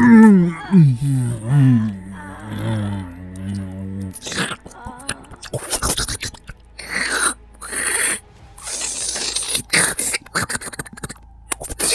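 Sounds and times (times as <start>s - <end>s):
wet biting and sucking: 3.2s - 11.9s.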